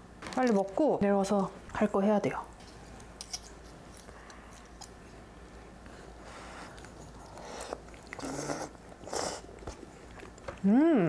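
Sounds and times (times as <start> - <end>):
noodles slurped: 6.7 - 10.4.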